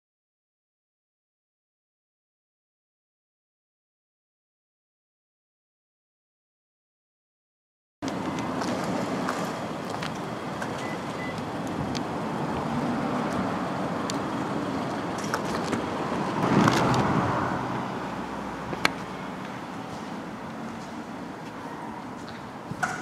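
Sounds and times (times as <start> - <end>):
passing cars: 8.0 - 23.0.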